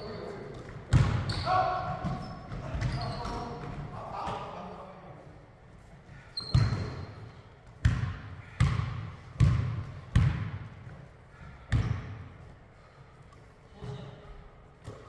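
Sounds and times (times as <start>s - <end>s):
basketball bouncing on hardwood floor: 0.9s - 1.2s, 7.8s - 10.6s.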